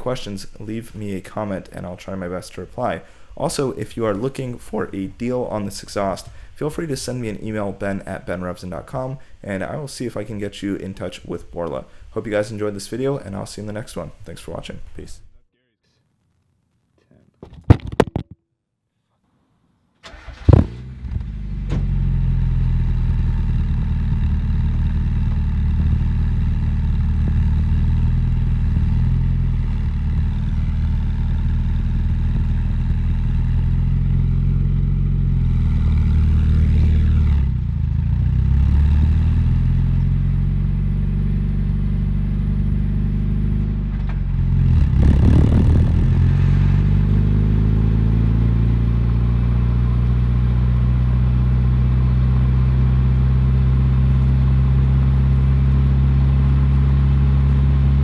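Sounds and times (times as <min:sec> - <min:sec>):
car exhaust engine note: 0:20.1 - 0:58.0.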